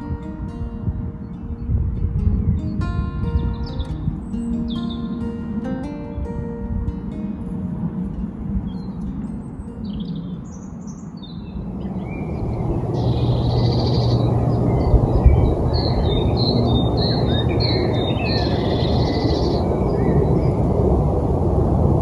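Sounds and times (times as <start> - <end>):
wind on microphone: 0.0 - 22.0
small birds chirping: 2.3 - 5.4, 8.7 - 21.4.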